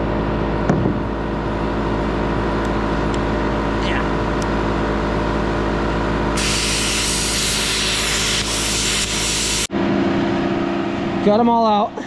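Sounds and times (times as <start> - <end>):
steady machine hum: 0.0 - 12.0
plasma cutter arc hissing: 6.4 - 9.7.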